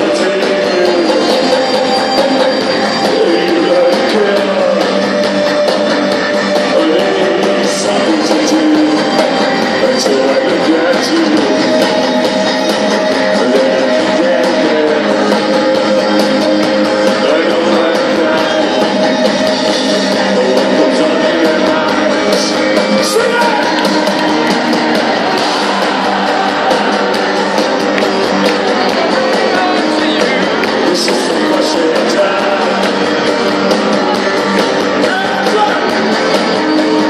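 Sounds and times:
person singing: 0.0 - 5.7, 6.6 - 12.4, 13.0 - 23.9, 28.7 - 34.2
live synth-rock band: 0.0 - 37.0.

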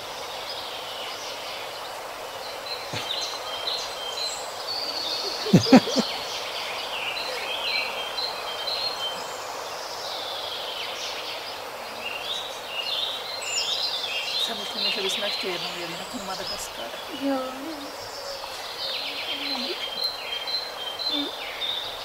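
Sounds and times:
outdoor hiss: 0.0 - 22.0
birds chirping and singing: 2.6 - 22.0.

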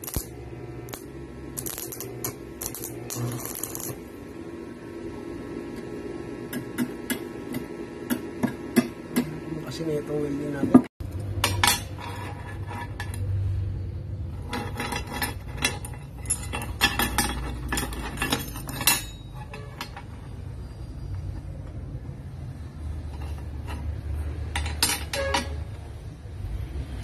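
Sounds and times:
metal pieces clinking on plate: 14.5 - 20.0.

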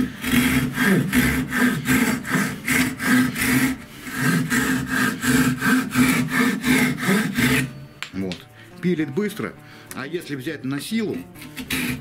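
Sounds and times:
hand saw cutting wood: 0.0 - 7.8, 10.8 - 12.0.

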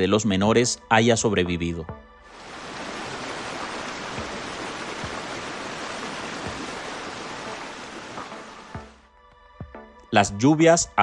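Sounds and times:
floodwater rushing in a channel: 2.3 - 8.9.

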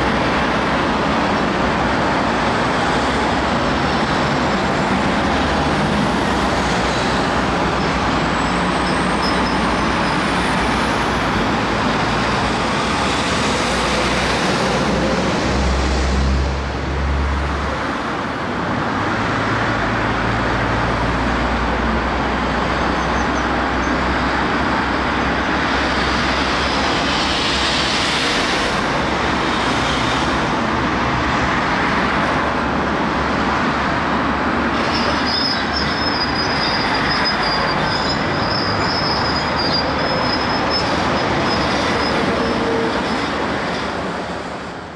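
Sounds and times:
heavy diesel engines running: 0.0 - 44.9
traffic noise: 0.0 - 44.9.

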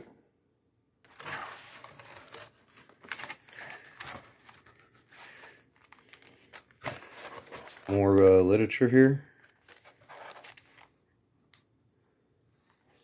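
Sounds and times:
paper rustling and crinkling: 1.1 - 11.0.

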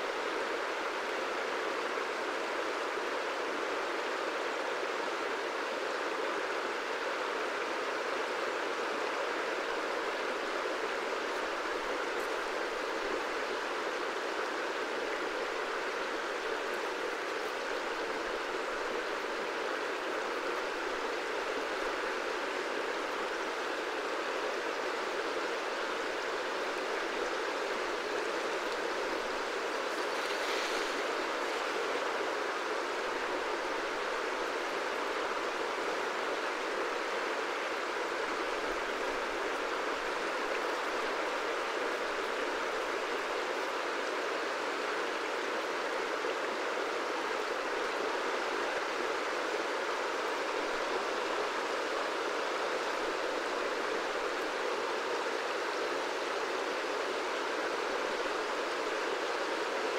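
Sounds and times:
river rushing: 0.0 - 59.9.

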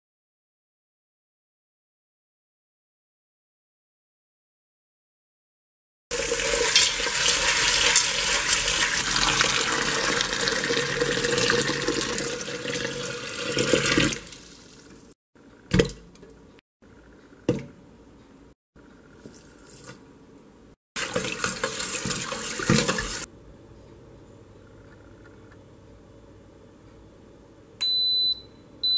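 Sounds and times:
tap water running into pot: 6.1 - 15.0, 21.0 - 23.3.

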